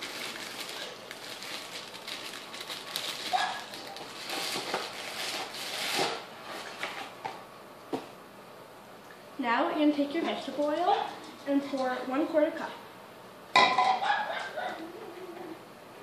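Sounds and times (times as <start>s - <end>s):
plastic bag rustling: 0.0s - 7.2s.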